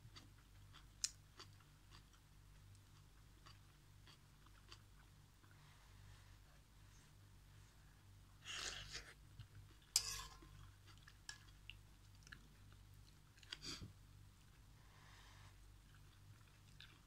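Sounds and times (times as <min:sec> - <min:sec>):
chewing noodles: 0:15.8 - 0:17.0.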